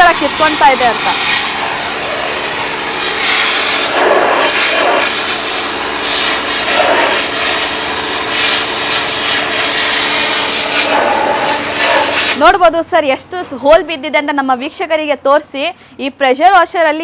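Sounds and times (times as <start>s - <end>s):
pump hum: 0.0s - 12.4s
pressure washer jet spraying: 0.0s - 12.5s.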